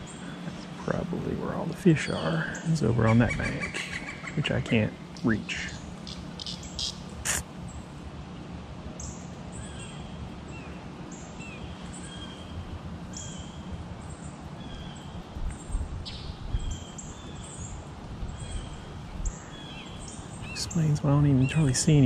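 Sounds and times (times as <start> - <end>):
small birds chirping: 0.0 - 22.0
wind rumble on microphone: 11.6 - 20.7.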